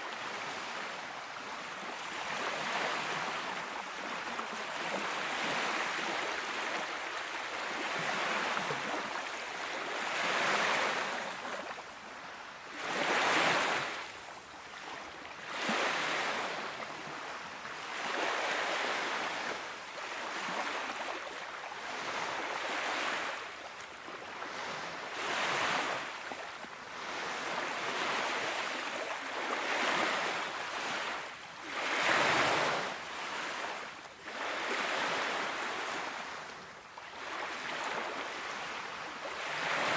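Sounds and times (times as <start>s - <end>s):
small waves washing onto beach: 0.0s - 39.9s.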